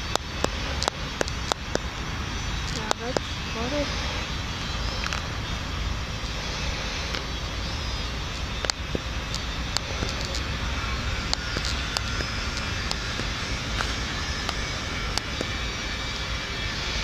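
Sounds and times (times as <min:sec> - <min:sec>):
rumbling outdoor background noise: 0:00.0 - 0:17.0.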